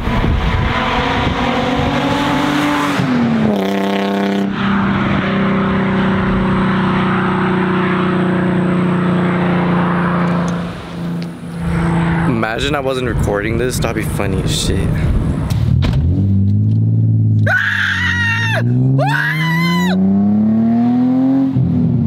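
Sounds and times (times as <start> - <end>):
loud car exhaust note: 0.0 - 14.2.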